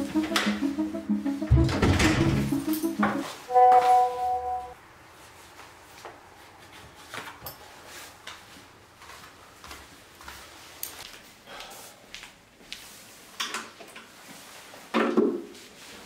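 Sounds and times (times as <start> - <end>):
phone message alert tone: 0.0 - 4.8.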